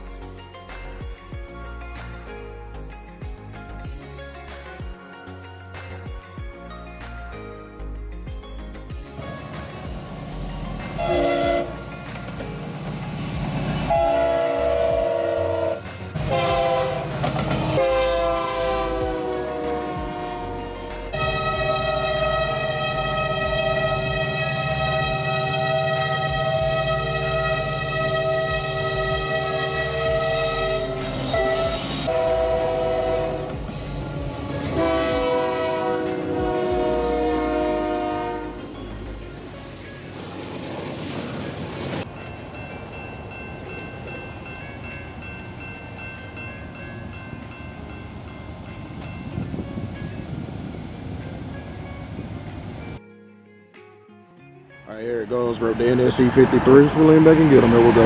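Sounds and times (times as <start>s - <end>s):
railcars rolling: 8.9s - 53.0s, 55.2s - 58.0s
diesel locomotive engines rumbling: 9.0s - 53.0s, 55.2s - 58.0s
locomotive air horn blasts: 11.0s - 11.8s, 13.9s - 38.7s.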